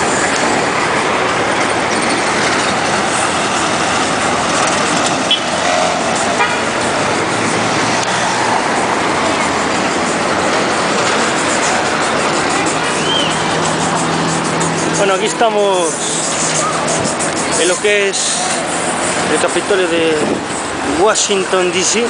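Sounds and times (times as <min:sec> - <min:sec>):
cars passing: 0:00.0 - 0:22.0
people talking: 0:08.8 - 0:22.0.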